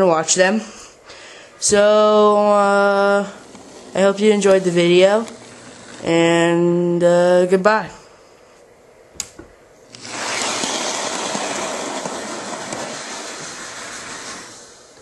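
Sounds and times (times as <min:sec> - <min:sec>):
sharp click: 0:09.2 - 0:09.5
toy train whirring on track: 0:10.0 - 0:14.8.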